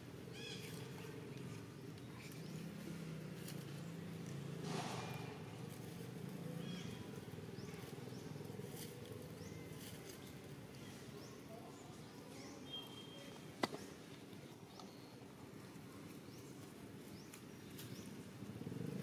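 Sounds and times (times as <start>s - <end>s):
brief noisy rustle: 4.6s - 5.5s.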